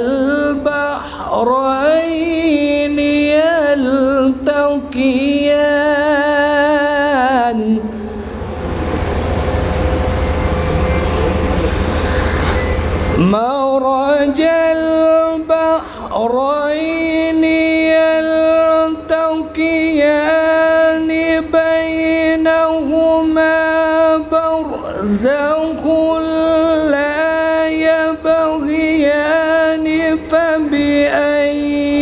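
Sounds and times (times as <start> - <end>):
man chanting melodically: 10.5 - 32.0.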